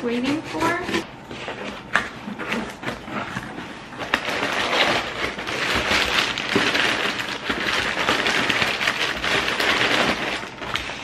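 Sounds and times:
packing paper crinkling: 1.3s - 11.0s.

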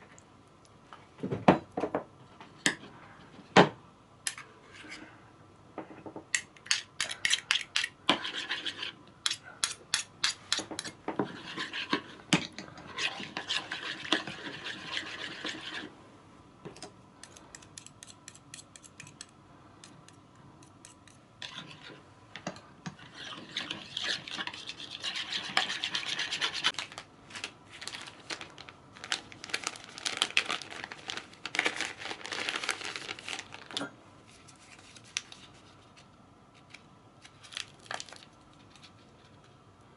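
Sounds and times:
spoon scraping and stirring: 6.7s - 15.9s, 17.2s - 26.8s.

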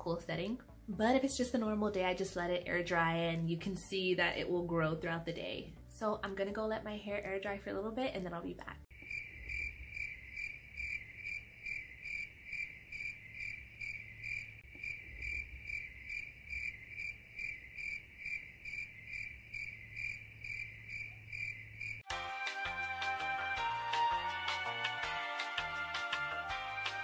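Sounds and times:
cricket chirping: 8.9s - 22.1s.

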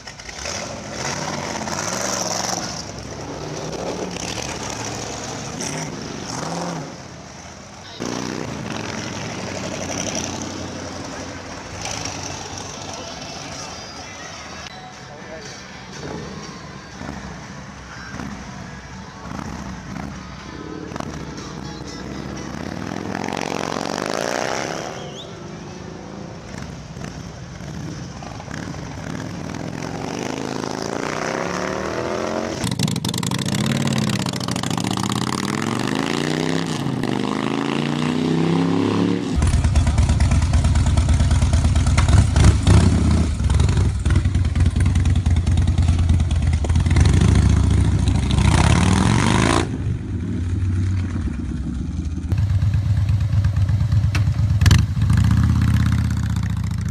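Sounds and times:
motorcycle exhaust revving: 28.5s - 56.9s.

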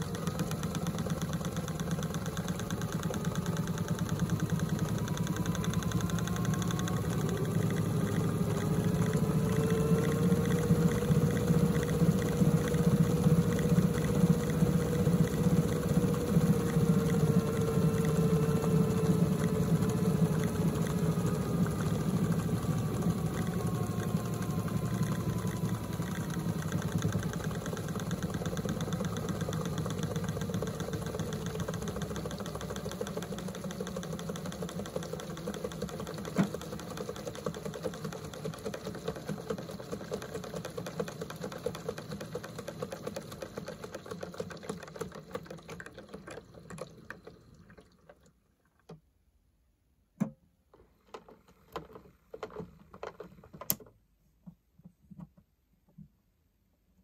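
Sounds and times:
small electric motor humming: 0.0s - 37.9s.

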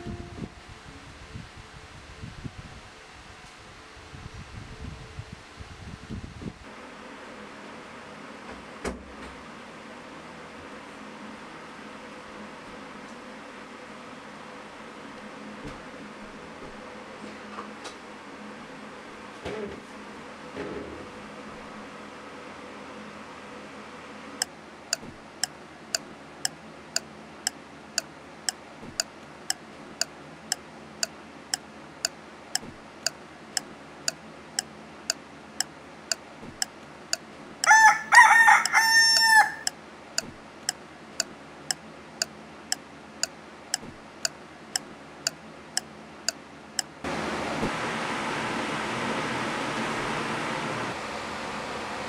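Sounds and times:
rooster crowing: 37.6s - 39.7s
clock ticking: 38.6s - 39.7s.

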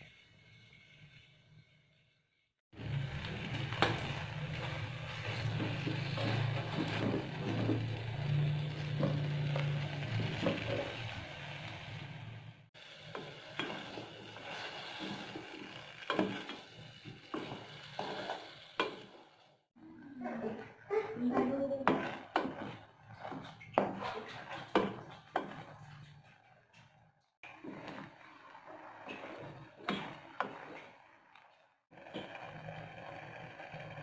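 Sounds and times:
fruit sizzling in pot: 2.8s - 19.6s.

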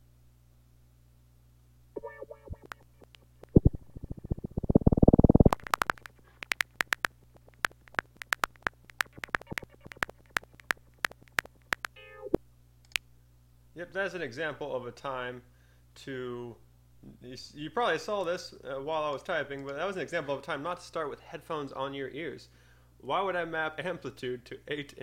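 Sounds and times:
sharp electronic clicks: 2.0s - 13.0s
rapid crackling clicks: 2.5s - 12.0s
short pitched electronic tones: 7.7s - 12.4s.

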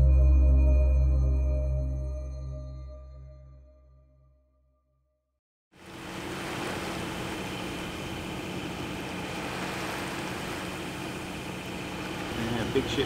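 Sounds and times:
boat hum with rushing water: 5.7s - 13.0s.

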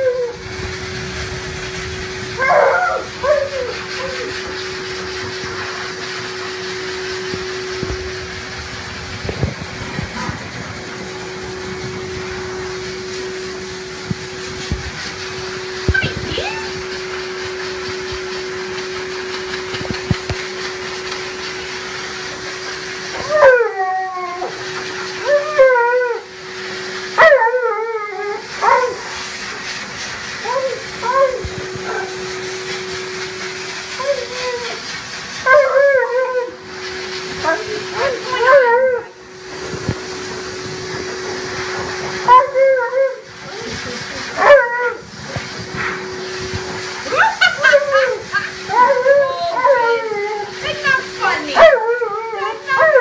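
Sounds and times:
dog howling: 0.0s - 0.6s, 2.3s - 4.6s, 15.9s - 17.0s, 23.1s - 26.4s, 27.1s - 29.1s, 30.4s - 32.4s, 34.0s - 34.8s, 35.4s - 36.7s, 37.4s - 39.2s, 42.2s - 43.6s, 44.4s - 45.1s, 47.1s - 53.0s
dog dryer motor whine: 0.0s - 53.0s.

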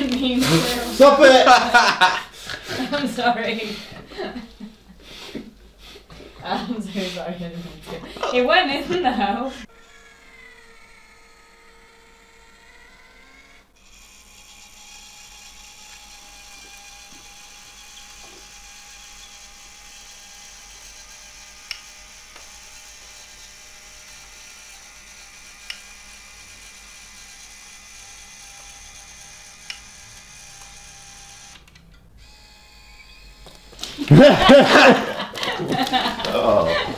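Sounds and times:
small electric motor whirring: 9.6s - 34.2s.

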